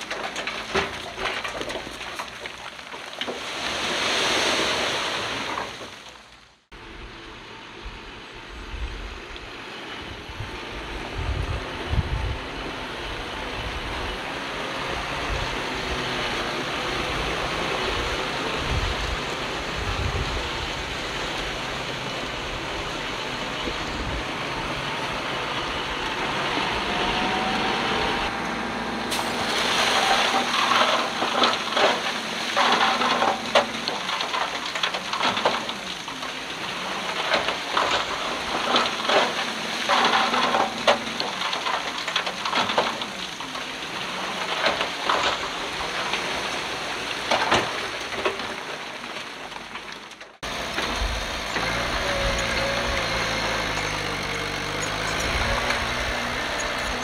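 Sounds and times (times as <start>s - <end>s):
crackling and clatter: 0.0s - 3.8s, 29.2s - 57.0s
diesel engine running: 6.7s - 57.0s.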